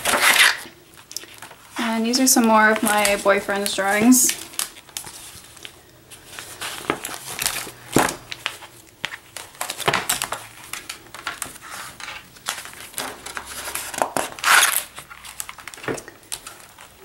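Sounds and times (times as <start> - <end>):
paper pages rustling: 0.0 - 17.0.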